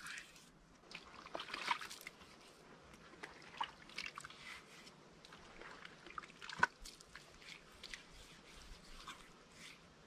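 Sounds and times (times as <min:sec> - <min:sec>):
wet clay squelching and scraping: 0:03.2 - 0:09.9.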